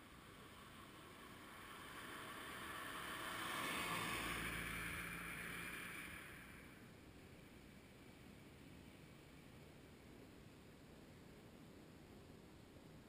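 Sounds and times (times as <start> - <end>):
vehicle passing by: 0.0 - 6.9.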